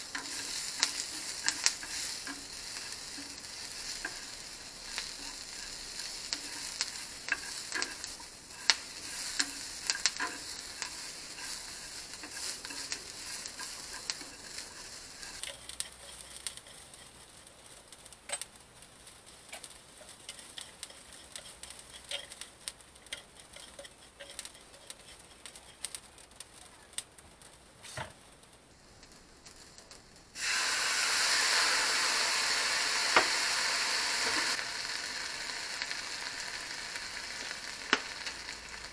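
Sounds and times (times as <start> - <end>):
food sizzling in a frying pan: 0.0 - 38.9
chopsticks clicking against pan: 0.1 - 17.1, 19.5 - 26.0
liquid hitting hot pan: 30.4 - 38.9.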